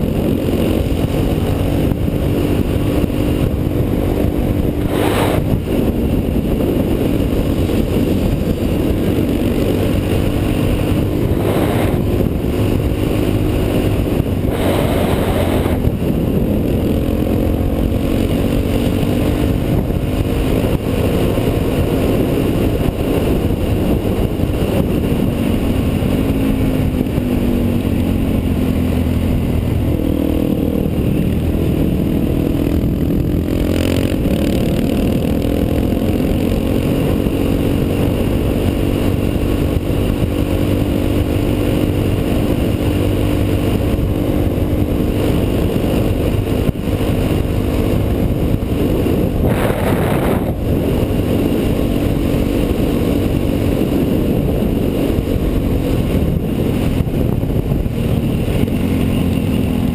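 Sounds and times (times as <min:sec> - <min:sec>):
motorcycle engine running: 0:00.0 - 0:59.9
rush of noise: 0:00.0 - 0:59.9
wind noise: 0:00.0 - 0:59.9.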